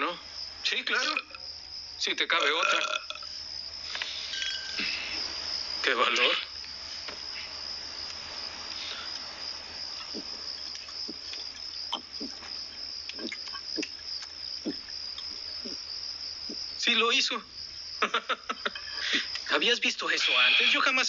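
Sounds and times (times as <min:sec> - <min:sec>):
crickets chirping: 0:00.0 - 0:21.0
man gulping from a bottle: 0:13.1 - 0:14.0.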